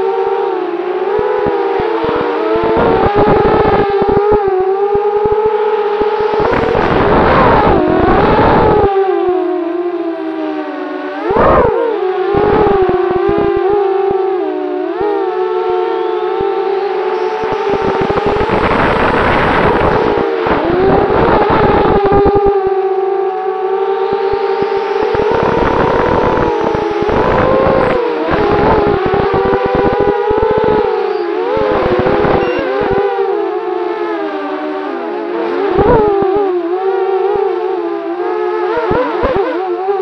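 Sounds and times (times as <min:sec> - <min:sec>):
wind buffeting microphone: 0:01.1 - 0:09.1, 0:16.4 - 0:33.3
drone motors whining: 0:01.2 - 0:08.9, 0:15.0 - 0:33.5
rough crackle: 0:17.2 - 0:22.5.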